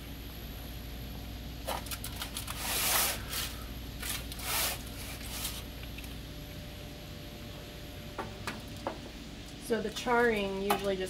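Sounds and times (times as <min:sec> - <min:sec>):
low hum: 0:00.0 - 0:11.0
aluminium foil crinkling: 0:01.7 - 0:06.2.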